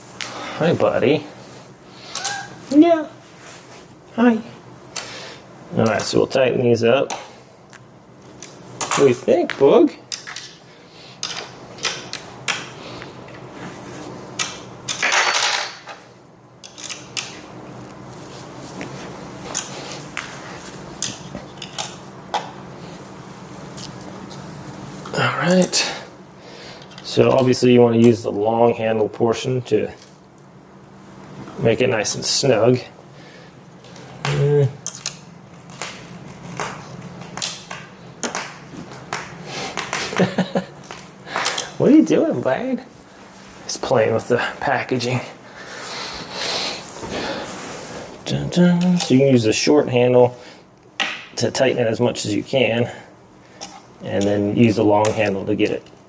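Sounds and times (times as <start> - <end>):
small metal pieces clinking: 14.9 - 16.0.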